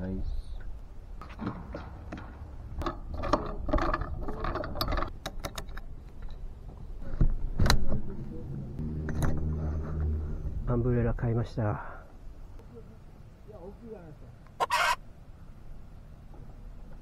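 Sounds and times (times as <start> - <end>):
metal and plastic parts clattering: 1.4 - 6.4.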